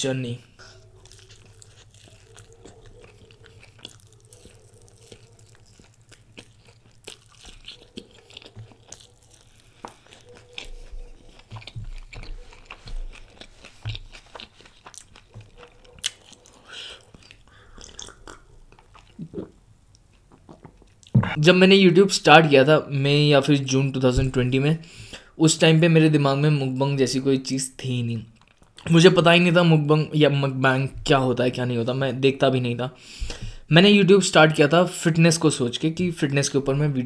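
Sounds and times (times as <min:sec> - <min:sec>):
chewing fried chicken: 0:00.2 - 0:21.2, 0:28.2 - 0:28.9
wet mouth clicks: 0:00.6 - 0:21.2.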